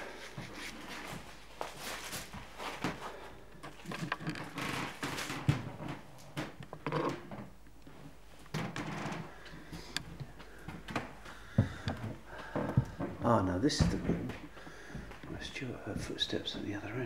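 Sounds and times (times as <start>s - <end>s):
footsteps: 0.0s - 4.0s, 7.9s - 16.8s
clothing rustling: 0.0s - 6.4s
knocks and scuffs: 7.9s - 16.6s.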